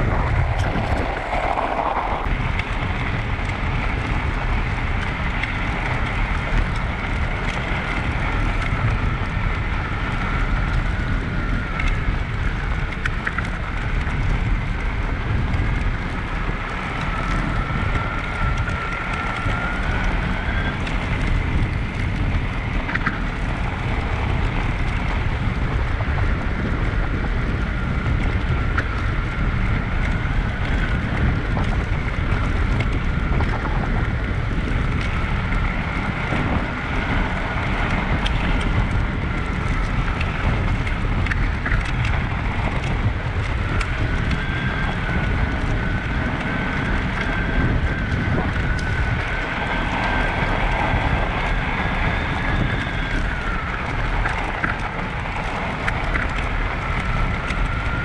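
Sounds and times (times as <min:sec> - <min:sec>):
tyres rumbling on snow: 0:00.0 - 0:58.0
wind buffeting microphone: 0:00.0 - 0:58.0
electric motor whine: 0:16.6 - 0:58.0.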